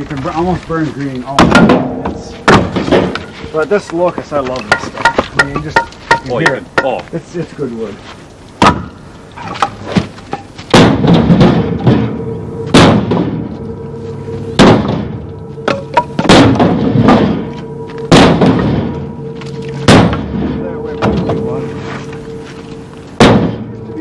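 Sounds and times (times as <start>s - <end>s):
music with heavy hits: 10.7s - 24.0s
held note: 11.5s - 24.0s.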